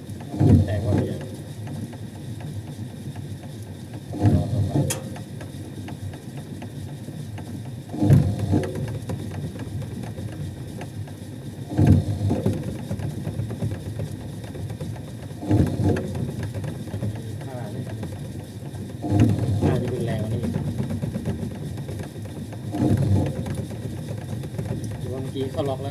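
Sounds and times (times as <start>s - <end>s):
washing machine drive rattling: 0.2s - 1.8s, 4.1s - 5.5s, 11.6s - 25.9s.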